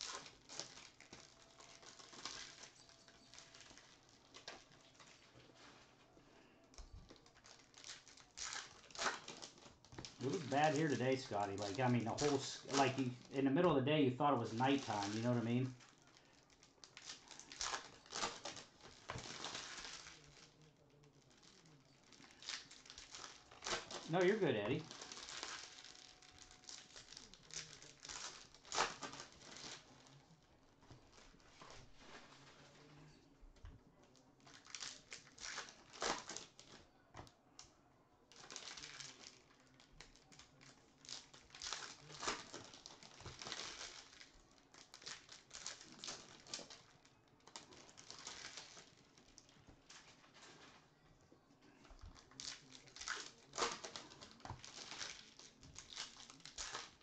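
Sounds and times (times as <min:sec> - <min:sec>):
cards rustling: 0:00.0 - 0:30.2, 0:51.6 - 0:57.0
wrappers crinkling and tearing: 0:00.0 - 0:33.1, 0:33.9 - 0:57.0.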